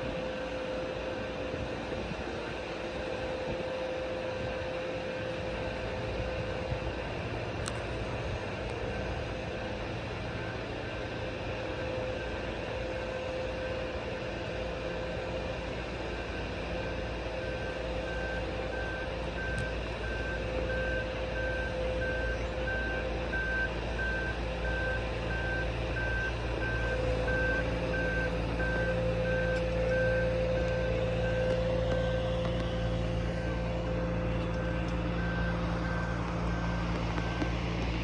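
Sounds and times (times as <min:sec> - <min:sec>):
engine running: 0:00.0 - 0:38.0
backup alarm beeping: 0:17.5 - 0:37.7.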